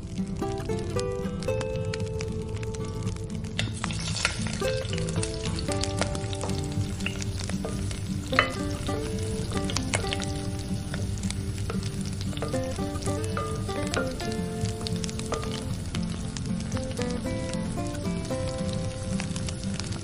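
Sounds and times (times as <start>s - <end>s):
background music: 0.0s - 20.0s
chicken sizzling in hot oil: 0.0s - 20.0s.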